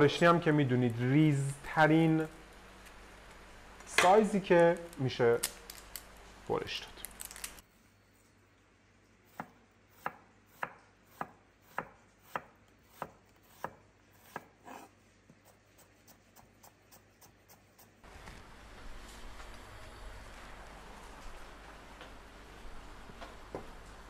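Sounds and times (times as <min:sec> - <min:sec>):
knife chopping on wooden board: 0:09.3 - 0:14.9.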